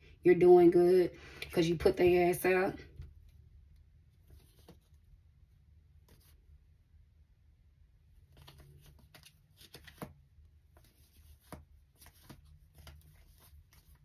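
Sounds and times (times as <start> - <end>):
cards being shuffled: 4.2 - 5.0, 6.0 - 6.4, 8.2 - 14.0.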